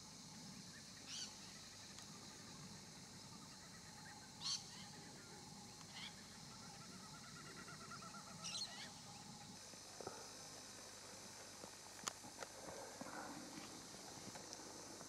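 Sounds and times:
bird trill: 1.1 - 1.5, 5.9 - 9.1
birds chirping: 5.8 - 9.6
bird warbling call: 5.9 - 9.0.

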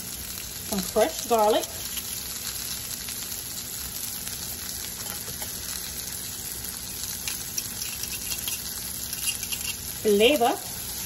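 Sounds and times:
vegetables sizzling in oil: 0.0 - 11.0
metal fork scraping pan: 7.2 - 9.9.

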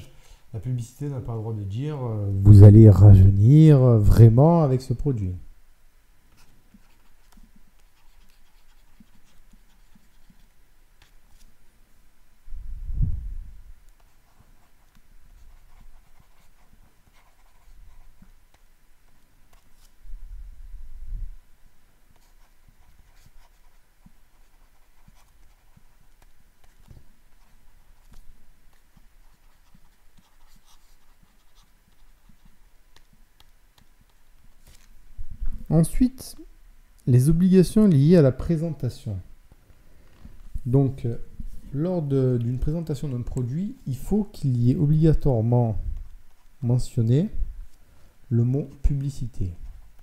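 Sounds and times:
stylus scratching on tablet: 6.3 - 11.5, 14.0 - 20.0, 22.1 - 34.8.

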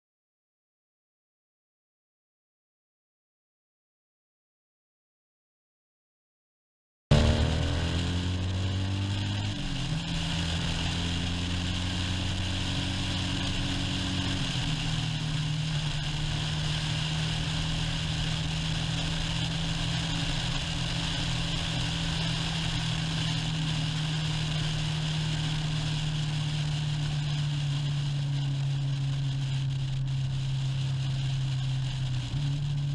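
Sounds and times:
motorcycle engine running: 7.1 - 32.9.

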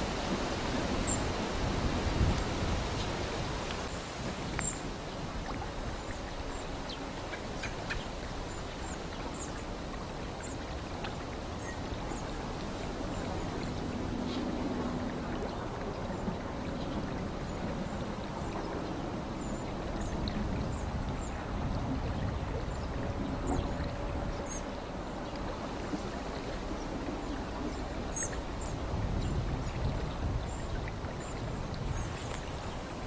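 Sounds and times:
rushing outdoor background noise: 0.0 - 33.0
high tick-like bird calls: 4.5 - 4.8.

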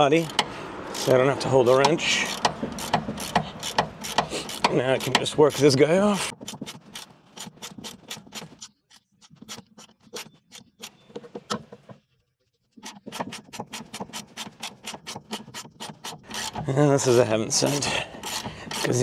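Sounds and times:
socket ratchet clicking: 0.2 - 5.7.

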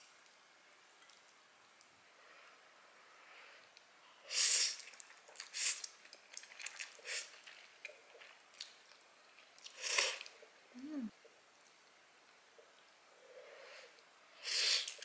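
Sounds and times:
soft wet chewing: 1.0 - 2.6, 4.8 - 13.0.

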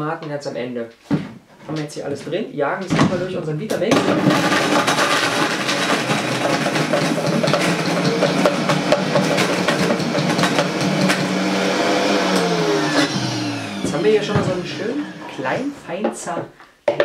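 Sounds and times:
food pieces clattering in jar: 4.0 - 11.2
blender running: 4.0 - 15.8.

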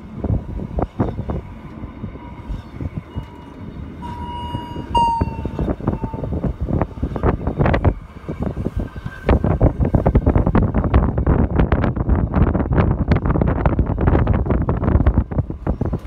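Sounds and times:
wheels squealing on rails: 0.0 - 11.4, 14.8 - 16.0
train rumbling: 0.0 - 16.0.

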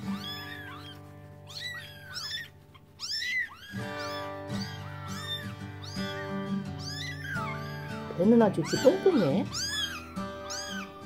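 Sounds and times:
kitten mewing: 0.0 - 11.0
background music: 3.8 - 11.0.

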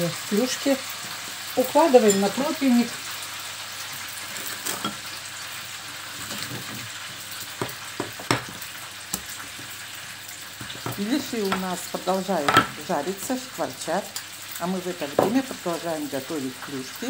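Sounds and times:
pies sizzling in oil: 0.0 - 17.0.

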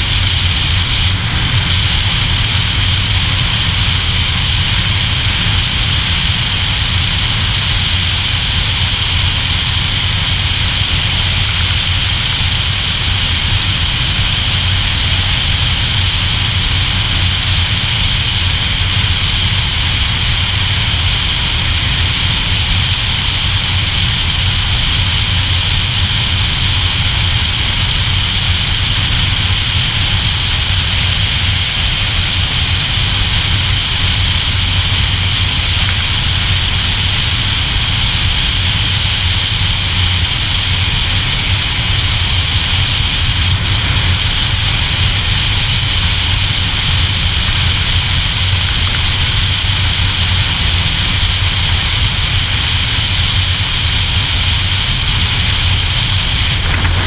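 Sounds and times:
motorcycle engine cruising: 55.4 - 57.0
wind rushing: 56.1 - 57.0.

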